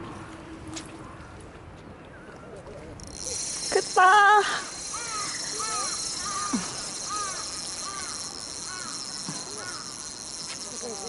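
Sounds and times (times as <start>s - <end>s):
birds calling: 4.6s - 11.0s.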